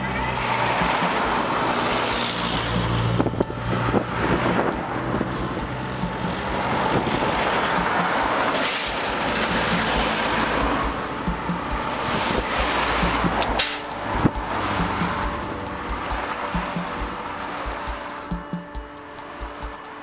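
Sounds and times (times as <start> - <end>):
vehicles driving past: 0.0 - 20.0.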